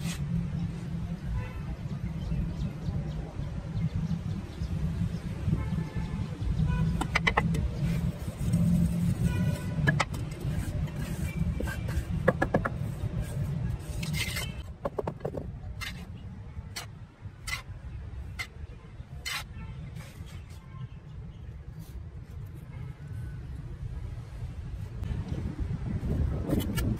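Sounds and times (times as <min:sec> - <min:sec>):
trowel scraping wet cement: 0:07.0 - 0:20.5.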